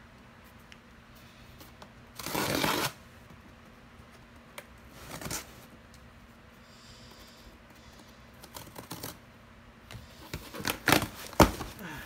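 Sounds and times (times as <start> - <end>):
cardboard rustle: 10.2 - 11.8.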